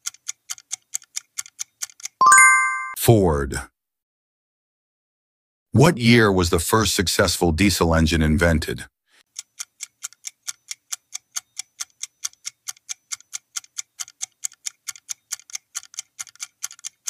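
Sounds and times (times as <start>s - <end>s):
clock-like ticking: 9.3s - 17.0s.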